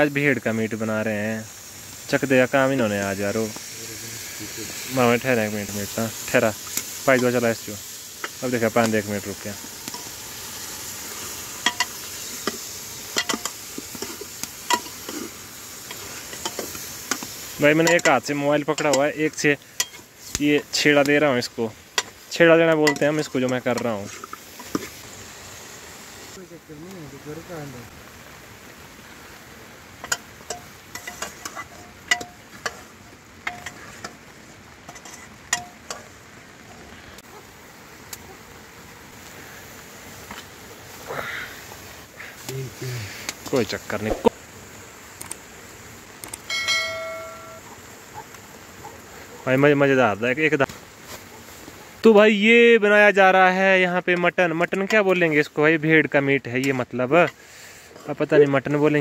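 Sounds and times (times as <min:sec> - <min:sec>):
meat cooking hiss: 0:00.0 - 0:59.0
metal spoon clinking against pot: 0:11.6 - 0:12.0, 0:13.1 - 0:14.1, 0:22.8 - 0:23.2
metal ladle clinking against pot: 0:22.8 - 0:23.2.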